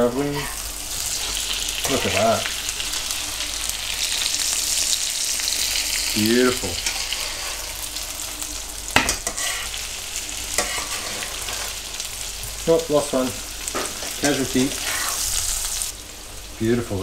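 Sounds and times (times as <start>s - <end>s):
food sizzling in a frying pan: 0.0s - 17.0s
spatula scraping a pan: 0.2s - 2.2s, 6.8s - 8.3s, 9.0s - 12.0s, 13.6s - 15.9s.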